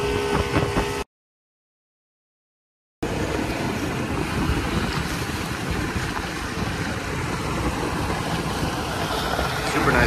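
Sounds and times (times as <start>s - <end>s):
boat engine drone: 0.0s - 1.1s, 3.0s - 10.0s
water rushing from hull: 0.0s - 1.1s, 3.0s - 10.0s
wind buffeting microphone: 3.0s - 10.0s.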